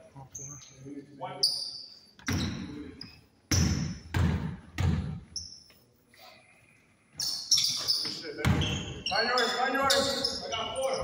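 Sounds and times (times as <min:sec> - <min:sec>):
sneakers squeaking: 0:00.2 - 0:11.0
basketball bouncing on gym floor: 0:02.2 - 0:02.8, 0:03.5 - 0:05.4, 0:07.6 - 0:09.0.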